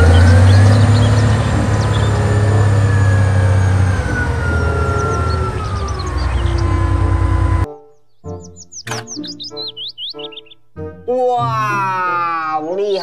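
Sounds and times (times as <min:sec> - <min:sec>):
diesel truck engine running hard: 0:00.0 - 0:07.7
hydraulic whine: 0:00.0 - 0:07.7
birds chirping: 0:00.0 - 0:11.5, 0:12.6 - 0:13.0.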